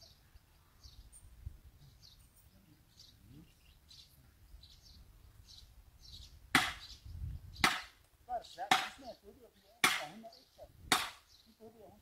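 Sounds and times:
loud sharp cracks: 6.5s - 6.9s, 7.6s - 8.0s, 8.7s - 9.0s, 9.8s - 10.2s, 10.9s - 11.2s.

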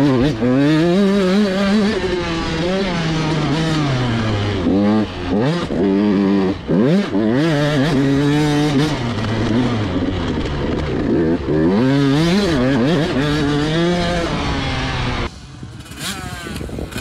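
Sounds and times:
two-stroke motorcycle engine revving: 0.0s - 17.0s.

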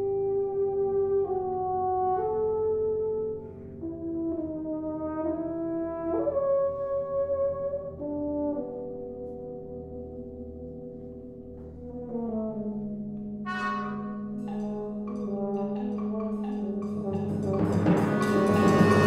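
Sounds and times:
brass band playing chords: 11.7s - 19.0s.

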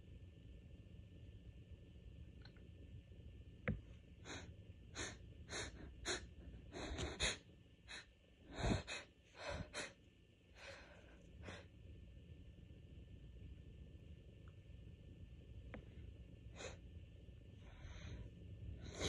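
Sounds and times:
click: 2.4s - 2.7s.

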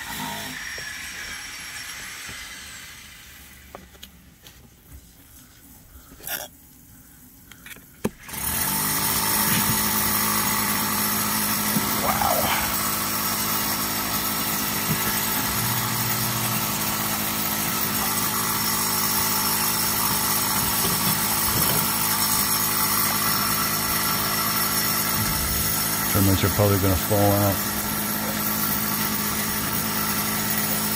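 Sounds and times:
motor running steadily: 7.2s - 30.9s.

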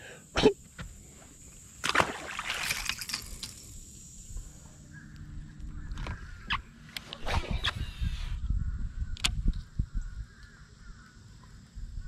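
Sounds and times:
fish splashing into water: 1.8s - 3.2s
distant birds calling: 4.5s - 11.7s.

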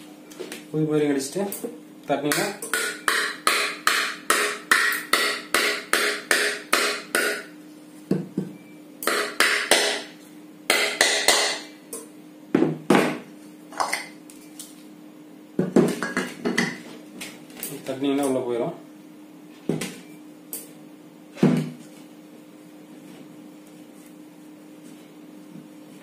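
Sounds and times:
hammer tapping metal: 2.3s - 7.5s, 9.0s - 10.1s, 10.7s - 12.1s.

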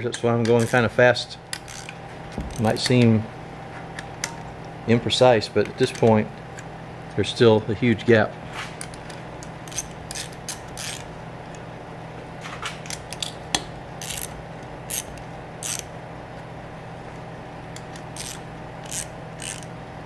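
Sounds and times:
steady low hum: 0.0s - 20.0s
ratchet wrench clicking: 1.5s - 1.9s, 9.7s - 11.1s, 14.0s - 15.9s, 17.8s - 19.7s.

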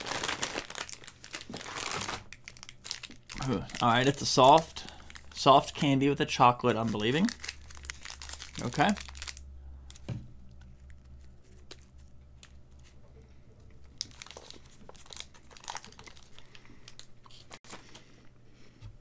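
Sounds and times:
candy wrapper crinkling: 0.0s - 6.0s, 6.6s - 12.6s, 13.8s - 17.7s
person chewing candy: 2.4s - 5.4s.

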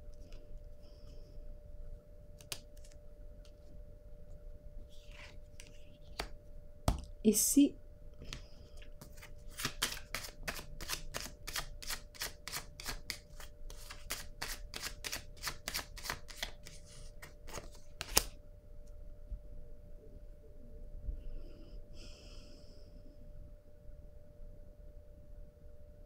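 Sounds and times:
cards shuffling: 2.4s - 3.6s, 4.9s - 7.1s, 8.3s - 18.3s
card snap: 17.5s - 18.3s.

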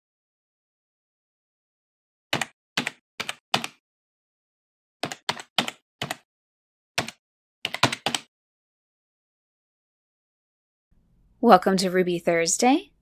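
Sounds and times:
computer keyboard keystrokes: 2.4s - 3.8s, 5.0s - 6.2s, 7.0s - 8.3s.

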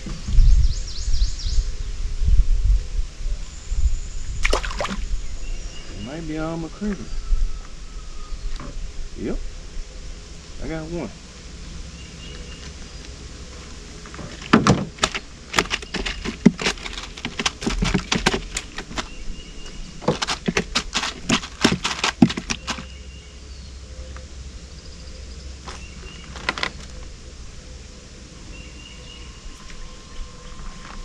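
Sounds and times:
clicks and knocks on a boat: 14.1s - 22.9s.

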